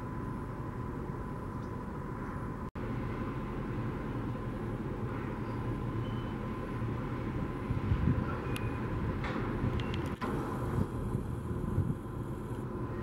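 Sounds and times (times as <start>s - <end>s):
faint high whine: 0.0s - 9.0s.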